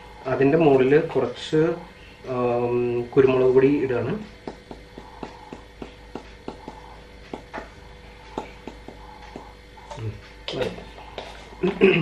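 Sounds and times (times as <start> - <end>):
low steady hum: 0.0 - 12.0
pepper container tapping: 4.4 - 7.7.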